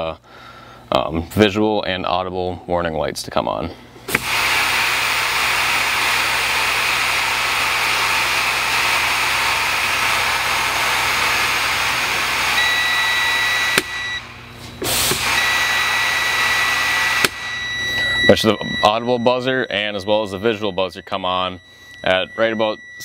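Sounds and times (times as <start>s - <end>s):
compressed air hissing: 4.1s - 12.6s, 14.6s - 17.4s
warning buzzer high tone: 12.4s - 14.4s, 15.2s - 23.0s.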